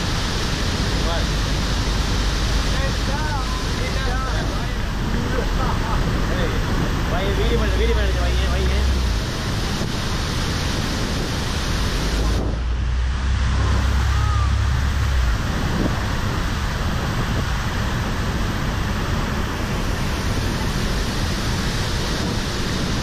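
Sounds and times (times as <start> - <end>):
waterfall roaring: 0.0 - 23.0
deep low rumble: 0.8 - 21.4.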